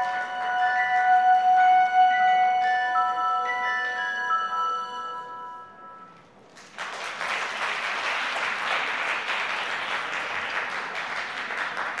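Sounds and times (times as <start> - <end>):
ringing music notes: 0.0 - 6.4
audience applauding: 6.5 - 12.0.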